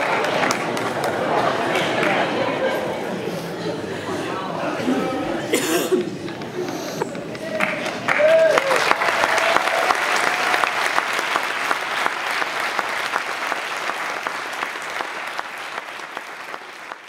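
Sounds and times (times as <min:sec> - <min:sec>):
audience applauding: 0:00.0 - 0:02.3, 0:07.4 - 0:17.0.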